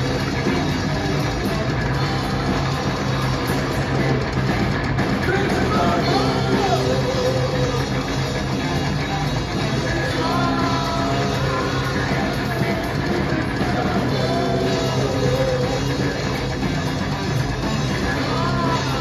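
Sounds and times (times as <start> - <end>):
bass guitar: 0.0 - 19.0
drums: 0.0 - 19.0
electric guitar: 0.0 - 19.0
person singing: 5.2 - 8.2, 9.8 - 16.5, 17.9 - 19.0.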